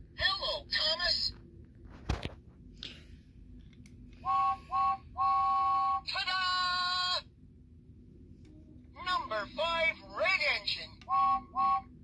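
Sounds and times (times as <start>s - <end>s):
toy train electronic whistle: 4.2s - 6.0s, 11.0s - 12.0s.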